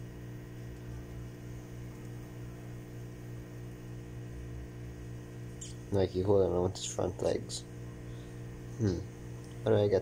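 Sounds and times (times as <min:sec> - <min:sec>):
low electrical hum: 0:00.0 - 0:10.0.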